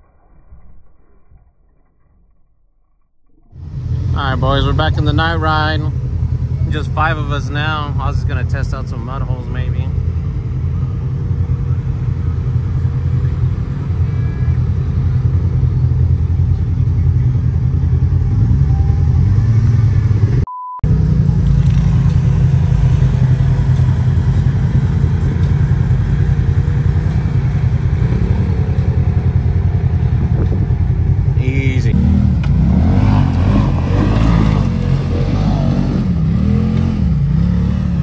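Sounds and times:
off-road vehicle engine rumbling: 0:00.0 - 0:38.0
short beep: 0:20.4 - 0:20.9.

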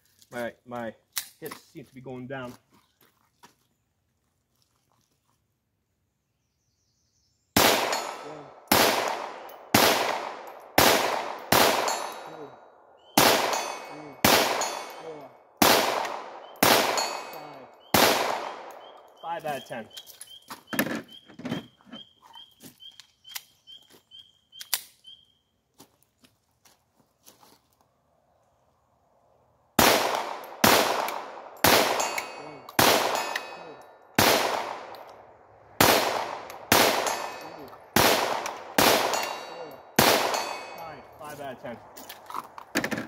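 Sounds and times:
pistol shots: 0:07.6 - 0:19.1, 0:29.8 - 0:35.1, 0:35.8 - 0:41.1
pistol handling clicks: 0:24.6 - 0:25.0
faint ring of steel target: 0:39.1 - 0:41.5.

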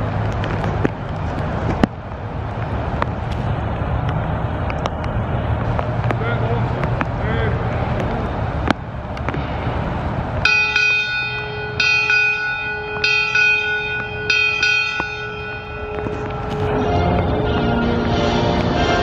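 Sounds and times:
ship's bell ringing: 0:10.4 - 0:19.0.

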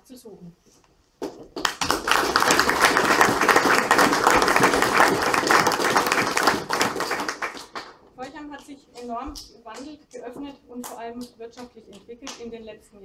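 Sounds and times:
audience applauding: 0:01.5 - 0:08.0.

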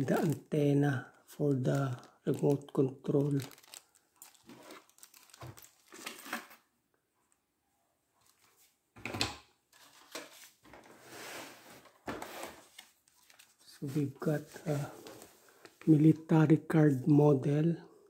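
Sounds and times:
plastic bag and cardboard rustling: 0:00.0 - 0:06.6
rustling scrape in box: 0:10.8 - 0:12.7.

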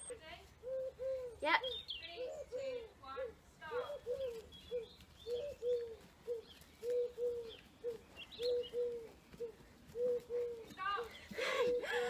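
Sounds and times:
pigeon cooing: 0:00.0 - 0:02.9, 0:03.7 - 0:12.0
small birds chirping: 0:00.0 - 0:12.0.

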